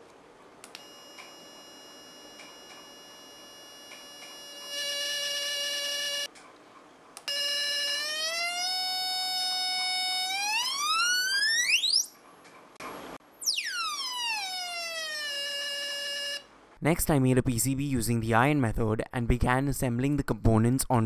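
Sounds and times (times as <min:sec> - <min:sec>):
buzzy electronic tone sweeping pitch: 0:13.4 - 0:16.4.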